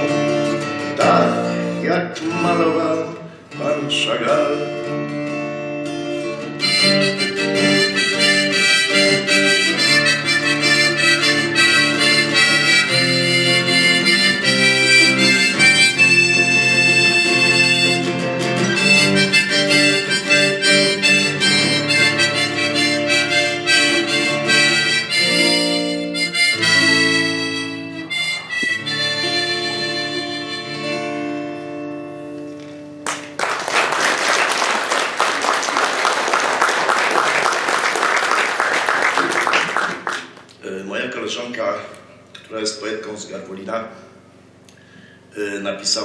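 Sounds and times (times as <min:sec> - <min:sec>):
harmonica: 0:00.0 - 0:03.6, 0:04.5 - 0:33.1
strummed acoustic guitar: 0:00.0 - 0:33.4
audience applause: 0:33.0 - 0:40.5.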